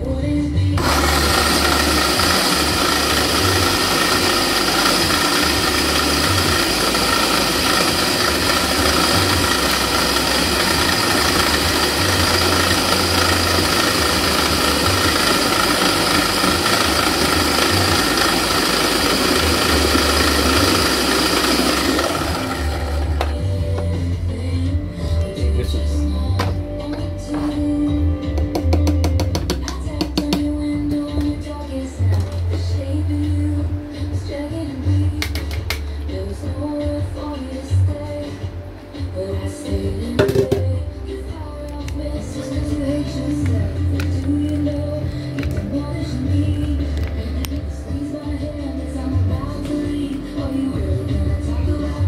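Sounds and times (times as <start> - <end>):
food processor running: 0.8 - 23.8.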